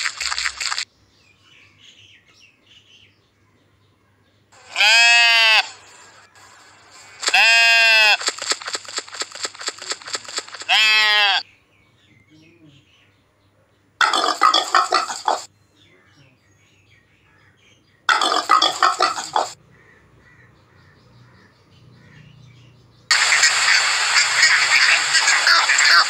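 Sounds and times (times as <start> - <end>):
clamour of animal calls: 4.6 - 8.7, 9.8 - 11.4, 14.0 - 15.5, 18.1 - 20.9
pig grunting: 14.0 - 15.5, 18.1 - 19.6.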